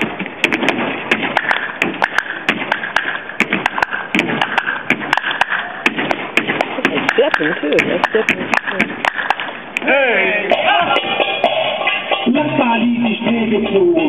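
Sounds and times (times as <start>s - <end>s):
percussive taps: 0.0s - 9.9s
rhythmic hand claps: 0.0s - 9.9s.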